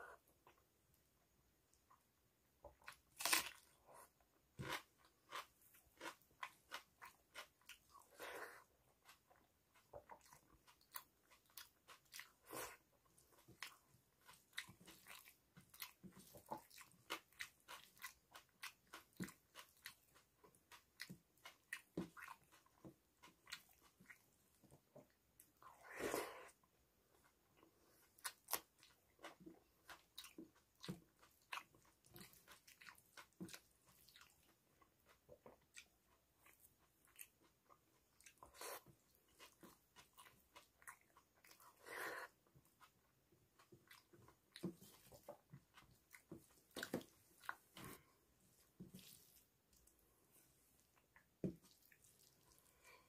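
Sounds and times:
wet chewing clicks and smacks: 13.1s - 25.5s, 28.1s - 41.7s, 42.4s - 47.9s.

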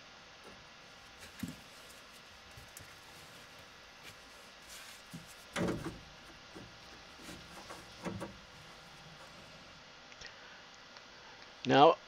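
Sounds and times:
knocks and bumps of tools: 5.1s - 9.5s.

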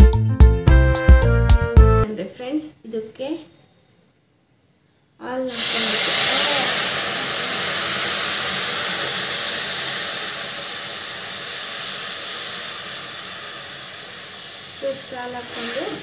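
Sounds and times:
milk hissing and sizzling in hot pan: 5.5s - 16.0s.

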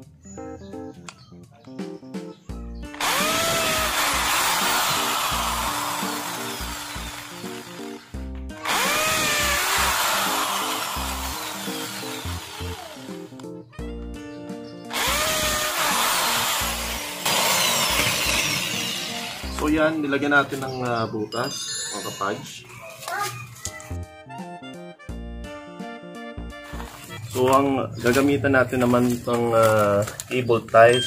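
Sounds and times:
background music: 0.0s - 30.0s
electric drill boring into wood: 2.9s - 13.4s, 14.9s - 19.7s.

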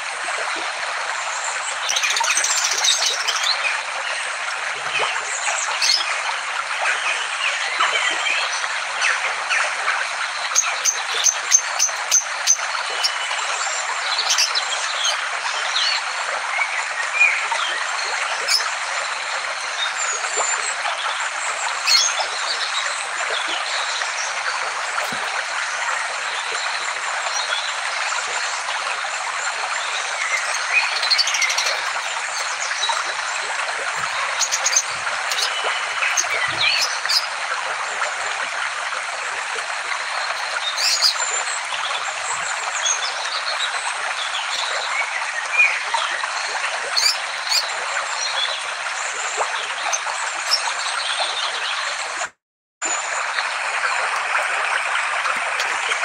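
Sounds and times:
small birds chirping and whistling: 1.9s - 3.6s, 10.5s - 13.2s, 14.2s - 15.2s, 21.8s - 22.6s, 29.5s - 37.3s, 40.0s - 41.6s, 47.0s - 48.4s.

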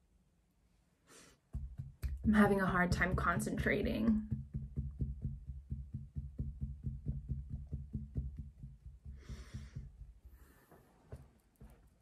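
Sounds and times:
fingertips tapping through sweater: 1.5s - 12.0s
short breath out: 9.2s - 10.9s.

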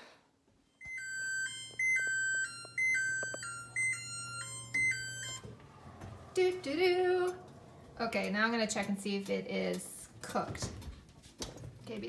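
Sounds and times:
oven timer beeping melody: 0.8s - 5.6s.

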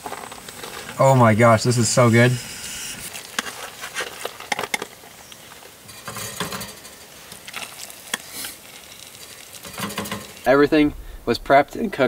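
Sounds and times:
utensil clinking against a bowl: 5.9s - 7.1s, 9.6s - 10.4s.

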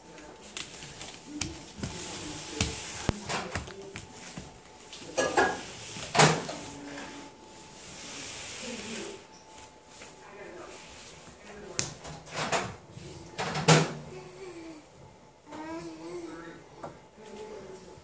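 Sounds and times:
hands slapping foam mats: 0.5s - 4.6s.

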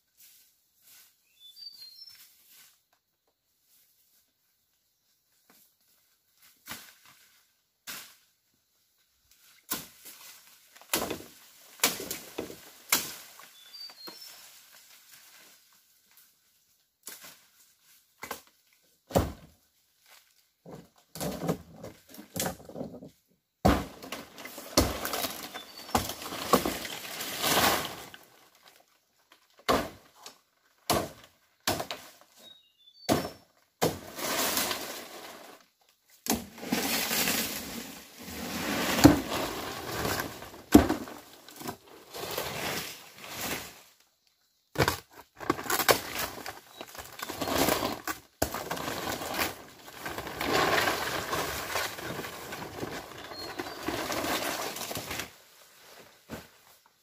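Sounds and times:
bamboo knocks and thuds: 10.8s - 13.3s, 19.1s - 19.5s, 20.6s - 27.0s, 29.6s - 32.3s, 33.1s - 34.2s, 40.2s - 41.8s, 44.7s - 49.5s
crackling and rustling: 44.8s - 55.4s.

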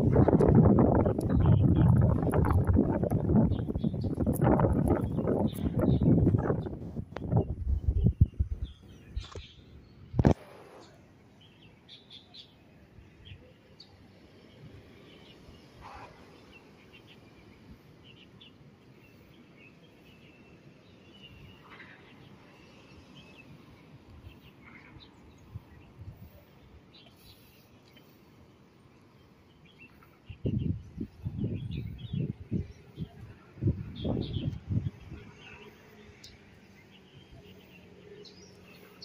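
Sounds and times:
small birds chirping: 0.2s - 39.0s
distant city traffic hum: 31.6s - 39.0s.

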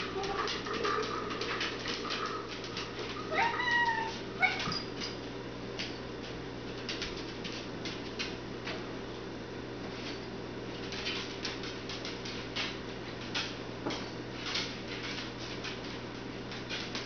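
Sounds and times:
dog claws clicking on floor: 0.0s - 8.8s, 9.9s - 17.0s
cat meowing: 3.3s - 4.7s.

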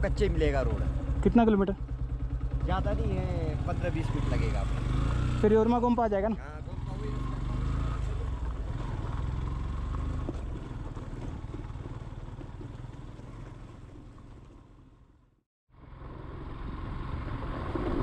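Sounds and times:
motorcycle riding on gravel: 0.0s - 18.0s.

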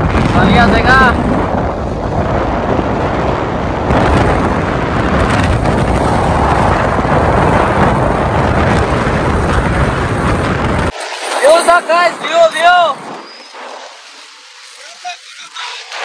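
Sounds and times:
wind buffeting microphone: 0.0s - 14.7s.

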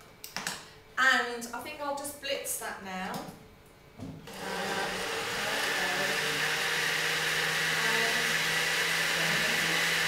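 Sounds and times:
blender contents churning: 4.3s - 10.0s
blender motor hum: 4.3s - 10.0s.

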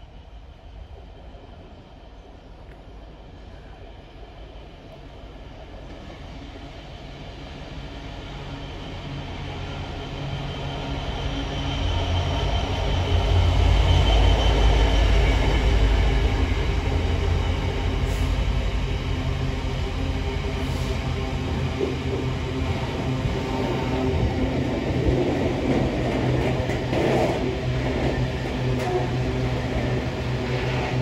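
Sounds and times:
diesel locomotive rumbling: 7.7s - 31.0s.

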